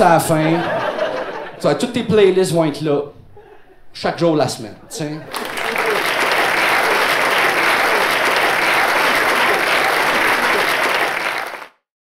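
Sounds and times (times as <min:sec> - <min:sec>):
audience applauding: 0:05.3 - 0:11.8.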